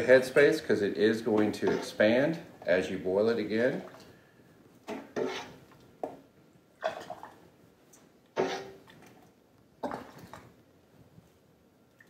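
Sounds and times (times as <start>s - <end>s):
ladle scraping a metal pot: 1.3s - 2.4s, 4.9s - 5.7s, 8.4s - 8.9s.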